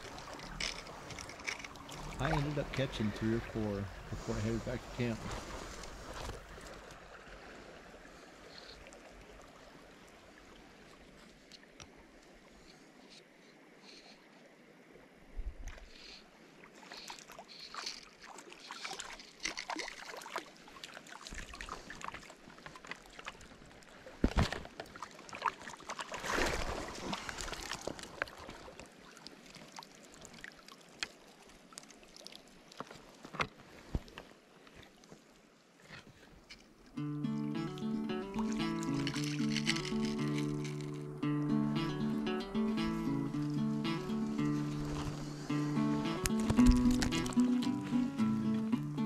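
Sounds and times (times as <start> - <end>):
water trickling: 0.0 - 4.1
water splashing in creek: 0.0 - 13.0, 14.9 - 41.2, 43.8 - 48.1.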